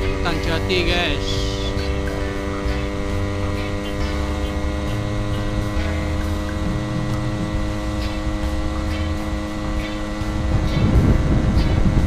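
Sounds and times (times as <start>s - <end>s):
two-stroke motorcycle engine cruising: 0.0s - 12.0s
wind rumble on microphone: 6.6s - 12.0s.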